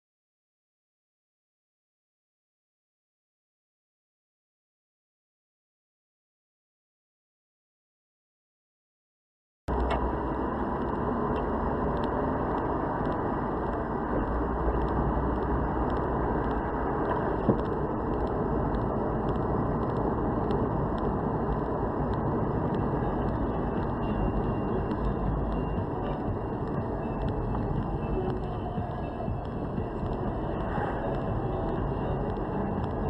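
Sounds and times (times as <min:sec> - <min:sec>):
car driving road noise: 0:09.7 - 0:33.0.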